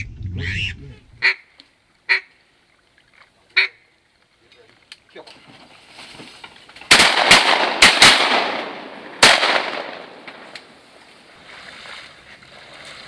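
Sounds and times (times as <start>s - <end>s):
shotgun shots echoing: 6.9s - 10.5s.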